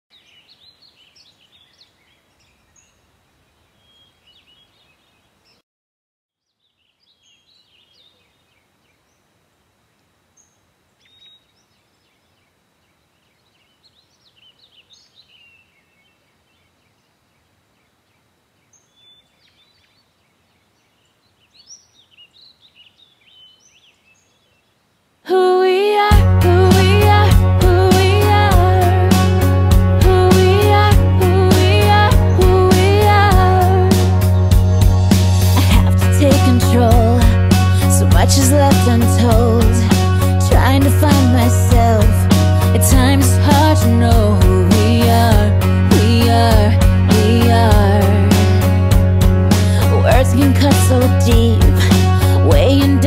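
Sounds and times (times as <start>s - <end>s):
birds chirping: 6.4s - 9.3s, 10.3s - 24.9s, 26.5s - 44.3s.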